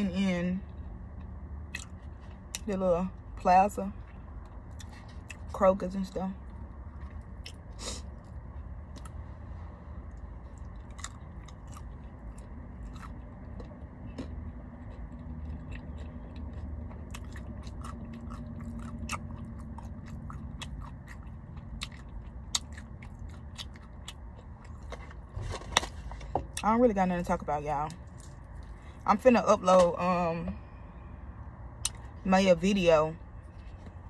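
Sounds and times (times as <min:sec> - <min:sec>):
low steady rumble: 0:00.0 - 0:34.0
person chewing with mouth smacks: 0:07.0 - 0:09.2, 0:10.1 - 0:25.2.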